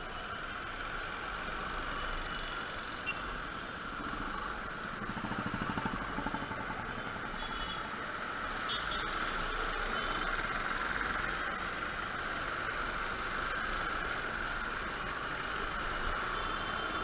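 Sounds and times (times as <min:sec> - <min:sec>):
scooter engine and road noise: 0:00.0 - 0:17.0.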